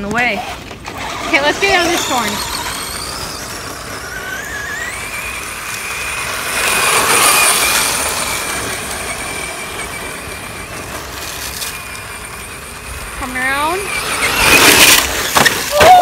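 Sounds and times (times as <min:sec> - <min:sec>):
rc truck motor whining: 0:00.1 - 0:16.0
tyres throwing dirt: 0:13.9 - 0:16.0.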